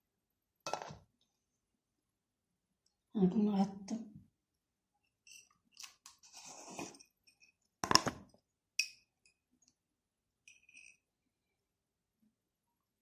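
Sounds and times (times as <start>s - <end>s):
small clink: 10.5s - 11.0s.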